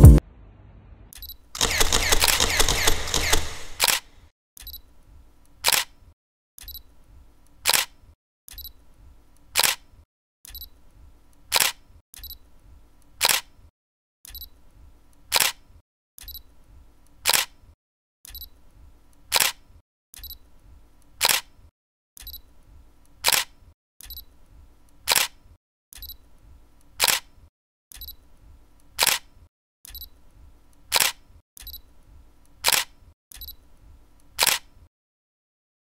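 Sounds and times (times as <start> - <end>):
low hum: 0.0 - 1.1
sharp snapping clicks: 1.6 - 4.1.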